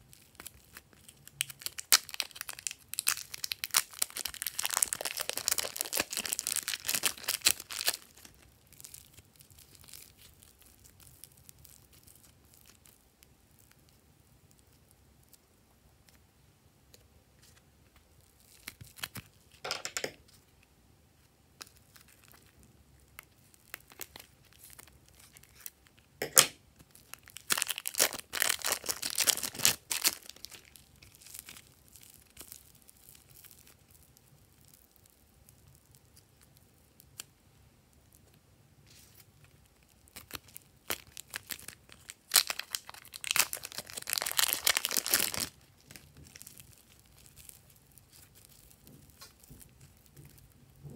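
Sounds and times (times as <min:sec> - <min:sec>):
plastic bag crinkling: 0:00.0 - 0:13.9, 0:21.6 - 0:26.1, 0:26.8 - 0:37.2, 0:38.9 - 0:50.7.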